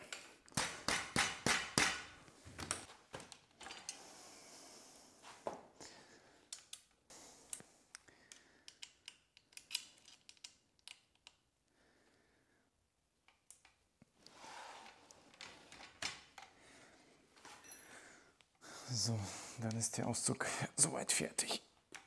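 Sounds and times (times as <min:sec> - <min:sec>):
metal fittings clicking and clinking: 0:06.5 - 0:11.4.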